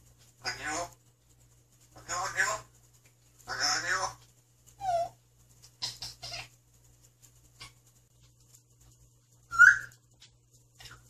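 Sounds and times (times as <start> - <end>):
parrot calls and whistles: 4.8 - 5.2, 9.5 - 10.0.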